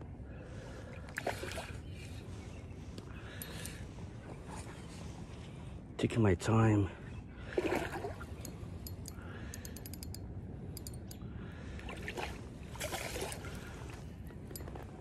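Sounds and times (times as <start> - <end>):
fishing reel clicking: 8.8 - 10.2, 10.8 - 11.2.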